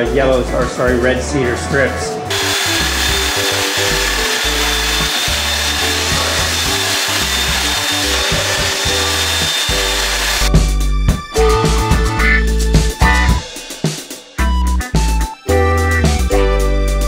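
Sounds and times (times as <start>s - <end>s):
belt sander running: 2.3s - 10.7s
background music with drum beat: 4.0s - 17.0s.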